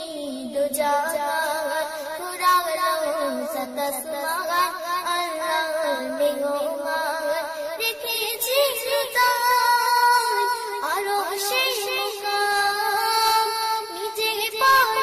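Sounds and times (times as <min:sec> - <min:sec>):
devotional song with ornamented vocals: 0:00.0 - 0:15.0.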